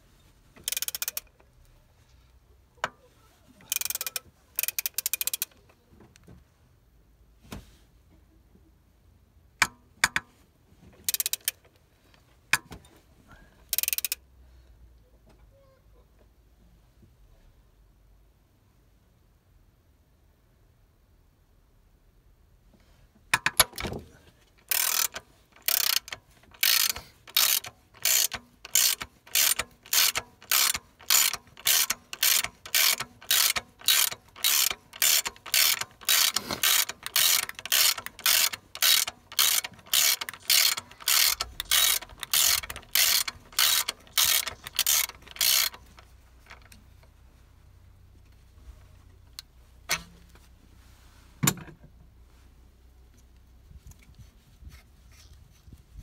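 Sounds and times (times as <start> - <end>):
ratchet wrench pawl clicks: 0.6 - 1.3, 3.7 - 5.6, 11.1 - 11.6, 13.7 - 14.2, 24.6 - 46.8.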